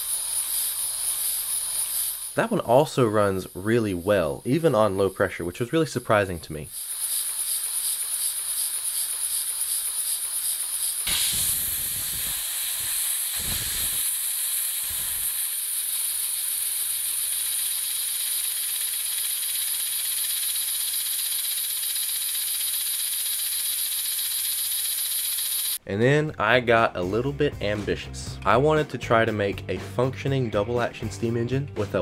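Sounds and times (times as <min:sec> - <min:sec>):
compressed air hissing: 0:00.0 - 0:05.4, 0:06.7 - 0:25.8
piston engine pulsing: 0:06.8 - 0:25.8.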